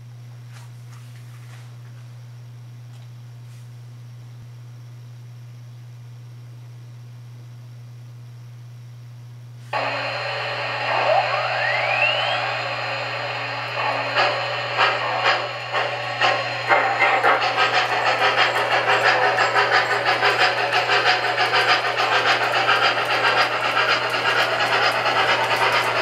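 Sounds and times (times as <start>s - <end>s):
low steady hum: 0.0s - 24.2s
steam hiss: 9.7s - 26.0s
short rising whine: 9.8s - 26.0s
steam locomotive chuffing: 9.8s - 26.0s.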